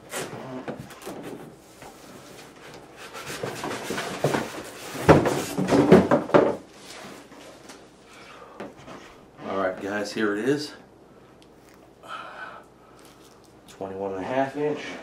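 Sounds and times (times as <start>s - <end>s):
cardboard packing scraping: 0.1s - 6.1s.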